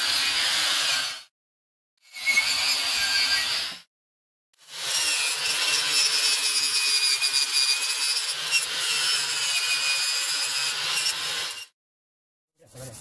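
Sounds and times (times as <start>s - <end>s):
angle grinder scouring metal: 0.0s - 1.3s, 2.0s - 3.9s, 4.6s - 11.7s.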